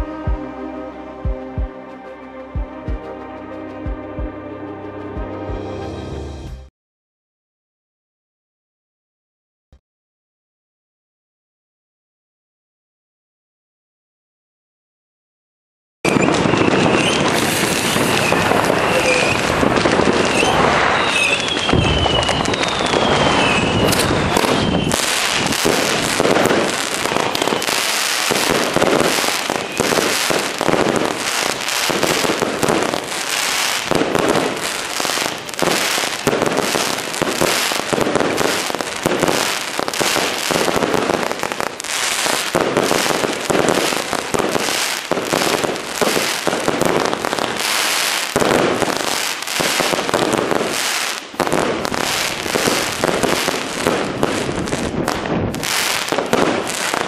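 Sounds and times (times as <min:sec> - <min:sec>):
fireworks barrage of loud bangs: 0:16.1 - 0:57.0.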